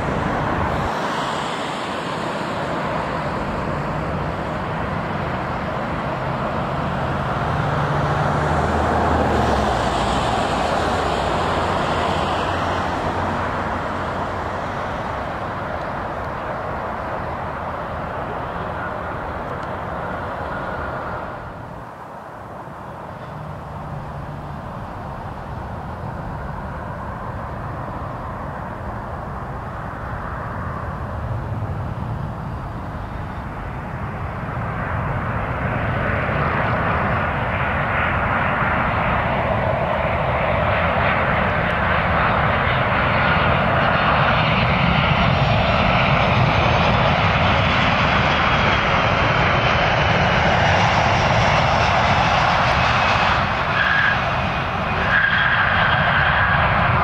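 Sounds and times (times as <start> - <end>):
jet engines rumbling: 0.0 - 57.0.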